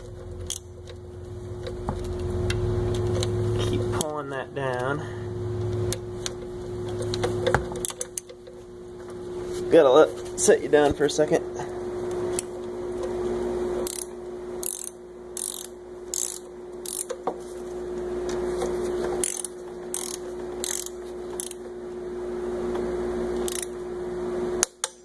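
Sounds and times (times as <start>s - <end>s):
steady hum: 0.0s - 25.0s
torque wrench ratcheting: 0.4s - 0.7s, 13.8s - 17.2s, 19.2s - 21.6s, 23.4s - 23.8s.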